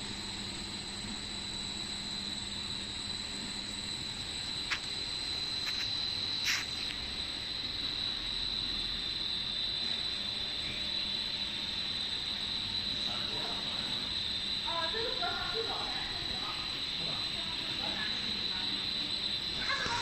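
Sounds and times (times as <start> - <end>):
high steady whine: 0.0 - 20.0
machine hiss: 2.1 - 20.0.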